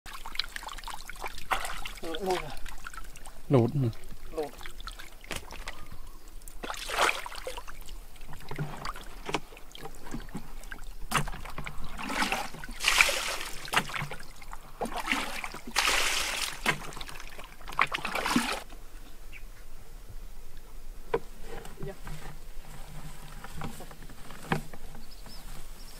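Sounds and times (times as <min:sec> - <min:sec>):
fish splashing in shallow water: 0:00.1 - 0:18.7.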